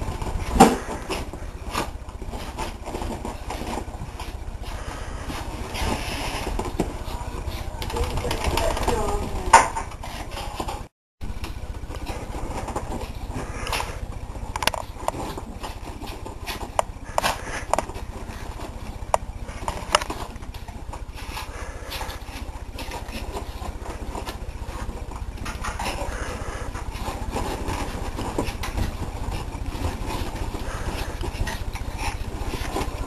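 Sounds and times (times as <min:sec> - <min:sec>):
low hum: 0:00.0 - 0:33.0
rustling: 0:00.0 - 0:33.0
dog paws thumping on cushions: 0:11.7 - 0:33.0.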